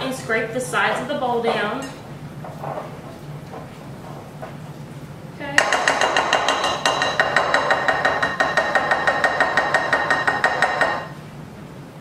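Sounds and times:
glass ringing: 5.6 - 11.2.

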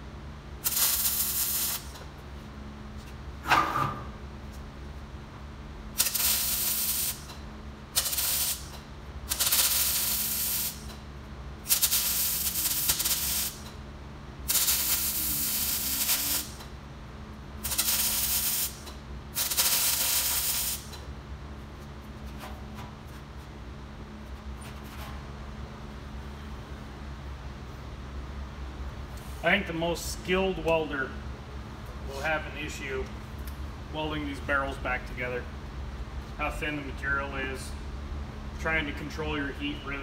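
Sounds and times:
welding arc hiss: 0.6 - 2.1, 5.9 - 11.0, 11.6 - 13.7, 14.4 - 16.7, 17.6 - 21.0.

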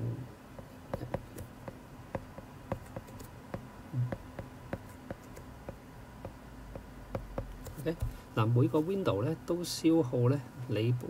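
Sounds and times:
faint low hum: 0.0 - 11.0
stylus tapping on glass screen: 0.9 - 8.2.

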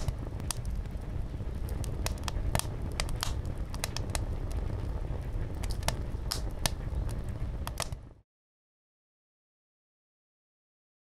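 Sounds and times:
bonfire crackling and popping: 0.0 - 8.2
low fire rumble: 0.0 - 8.2.

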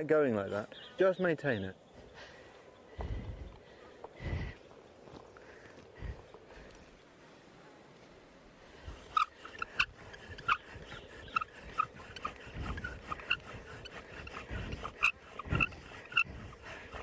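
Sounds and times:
bow drill squeaking: 8.8 - 17.0.

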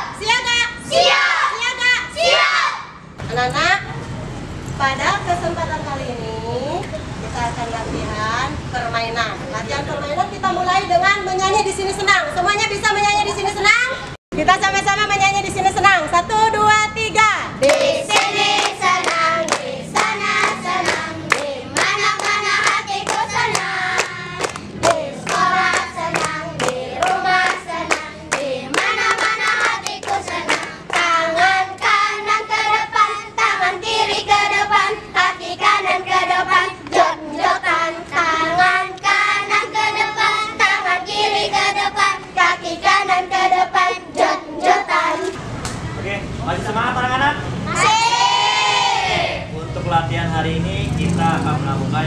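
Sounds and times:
rhythmic hand clapping: 17.6 - 32.7
children singing a chant: 17.6 - 45.4.

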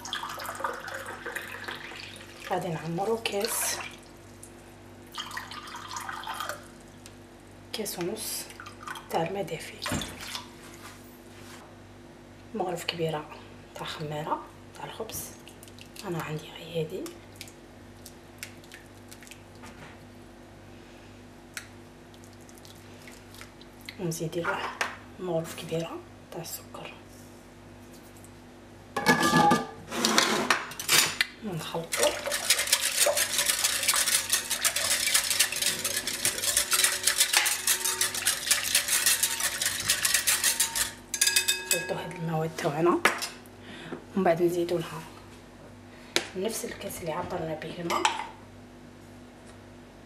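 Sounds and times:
steady low hum: 31.2 - 50.0.

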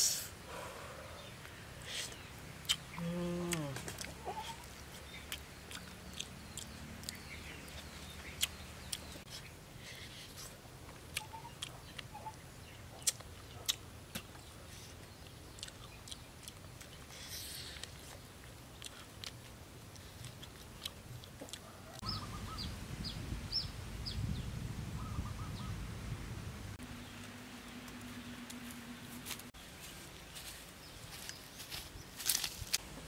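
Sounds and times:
steady low rumble: 22.0 - 33.0.

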